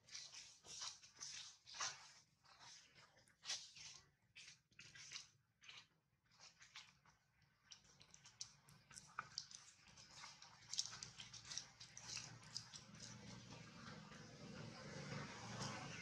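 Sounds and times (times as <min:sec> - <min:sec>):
soft clicks and rustles on dry leaves: 0:07.7 - 0:13.7.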